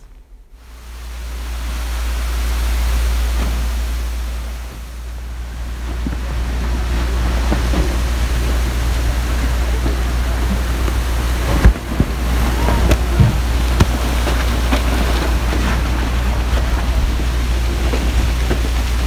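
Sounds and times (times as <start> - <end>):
boat engine rumble: 0.0 - 19.0
wind on microphone: 0.0 - 19.0
ice knocking against hull: 5.8 - 19.0.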